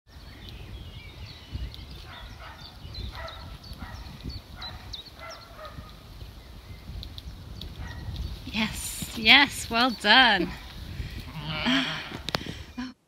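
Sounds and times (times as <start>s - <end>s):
small birds chirping: 0.1s - 12.8s
wind rumble on microphone: 0.1s - 12.9s.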